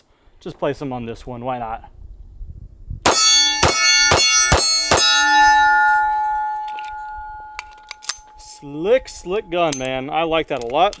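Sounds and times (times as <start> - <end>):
steel target ringing: 3.1 - 9.9.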